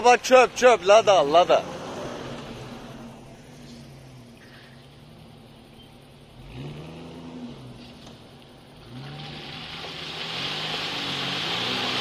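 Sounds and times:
engine revving: 1.0 - 4.2, 6.3 - 12.0
tyres splashing through mud: 8.8 - 12.0.

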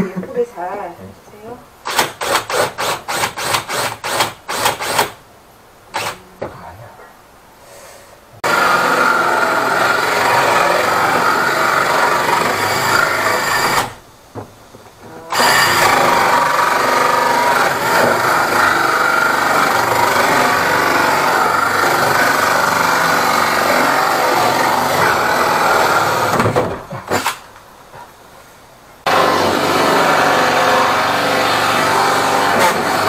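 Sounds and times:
cordless drill running: 15.3 - 26.4.

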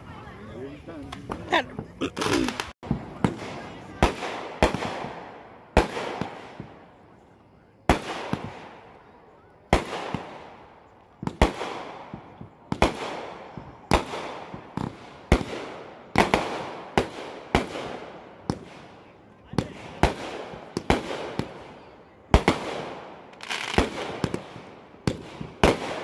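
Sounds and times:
rumble and crackle of fireworks: 0.0 - 26.0
fireworks bangs: 1.1 - 26.0.

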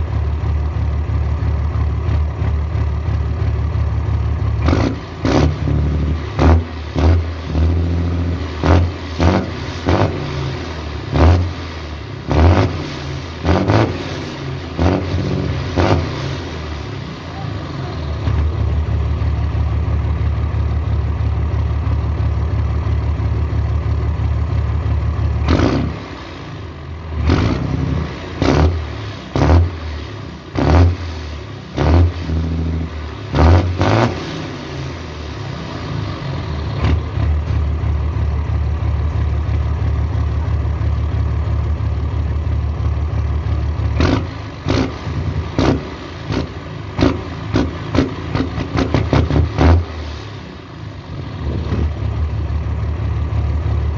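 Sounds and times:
diesel truck engine idling: 0.0 - 53.9
diesel engine short revs: 4.0 - 19.8, 25.3 - 38.9, 43.4 - 53.9.

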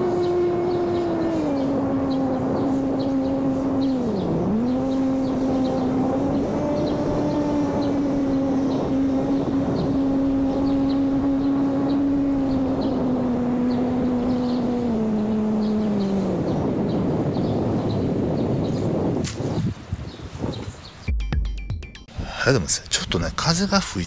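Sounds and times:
electric propeller motor whine: 0.0 - 19.2.

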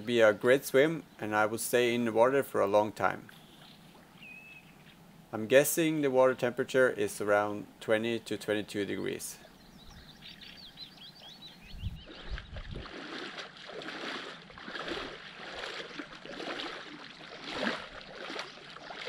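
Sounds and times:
faint bird chirps: 3.3 - 5.0, 8.8 - 12.6
water splashing from swimming strokes: 12.0 - 19.0.

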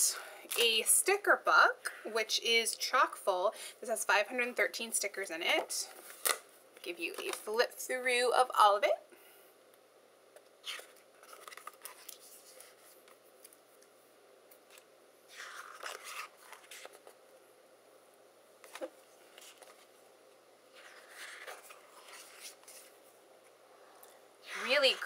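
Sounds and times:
paper pages turning: 10.6 - 13.6, 14.7 - 17.2, 18.6 - 19.9, 20.7 - 23.1.

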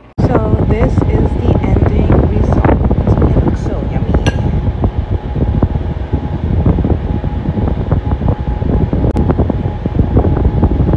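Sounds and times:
wind buffeting microphone: 0.0 - 10.9.

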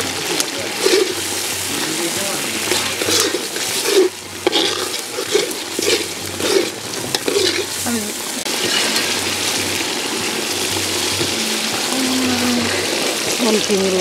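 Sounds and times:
pot sizzling: 0.0 - 14.0
metal ladle scraping pot: 0.7 - 7.8, 8.5 - 11.8.

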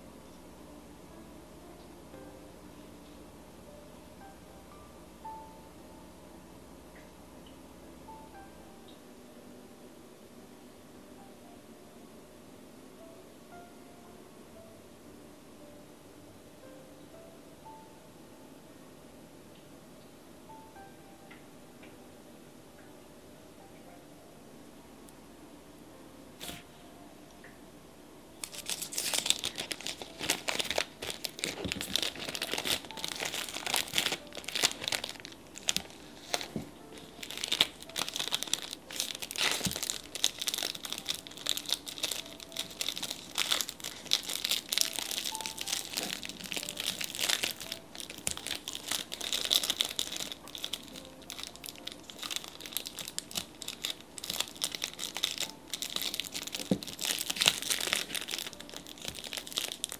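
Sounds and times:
plastic packaging crinkling: 28.4 - 59.9.

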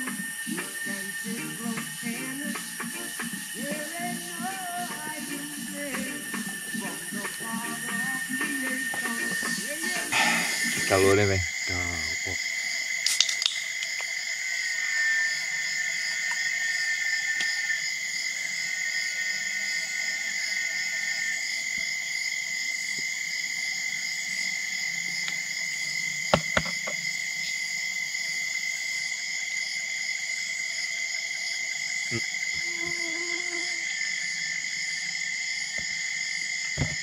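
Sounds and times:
insects chorus: 0.0 - 37.0
sharp knocks: 26.3 - 27.0.

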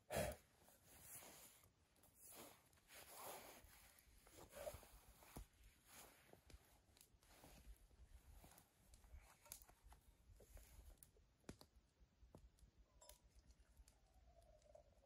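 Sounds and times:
faint clicks and taps: 5.2 - 15.0.

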